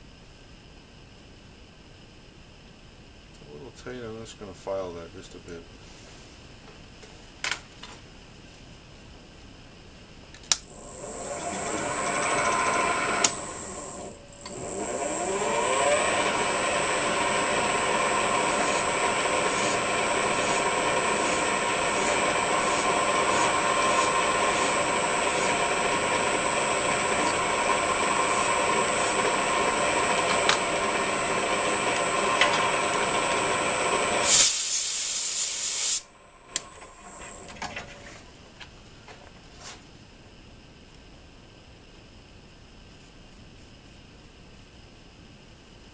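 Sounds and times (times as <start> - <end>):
loud burst of hiss: 10.7 - 37.4
lathe spindle whining: 10.7 - 38.2.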